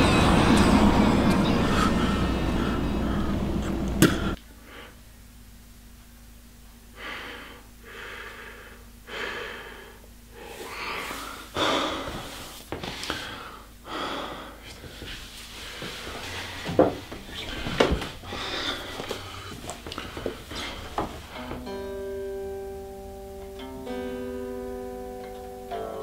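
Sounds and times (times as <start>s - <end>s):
man gasping for breath: 7.0s - 16.8s, 17.6s - 21.4s.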